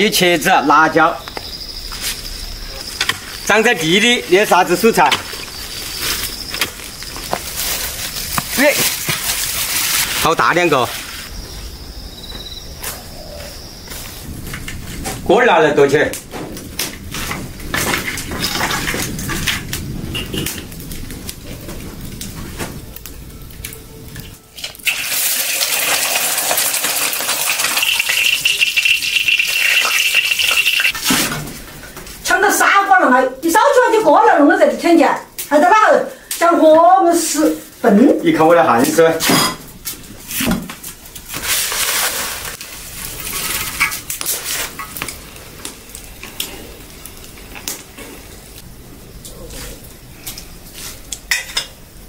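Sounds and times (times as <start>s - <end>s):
egg frying sizzle: 16.8s - 31.1s, 40.8s - 48.7s.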